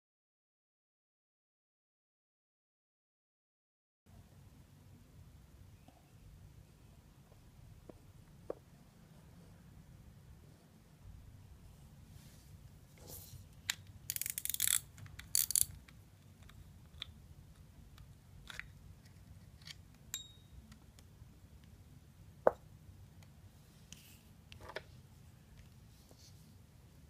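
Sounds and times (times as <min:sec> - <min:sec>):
fishing reel ratchet clicking: 0:14.1 - 0:15.8
small clicks of reel spool: 0:14.1 - 0:15.8.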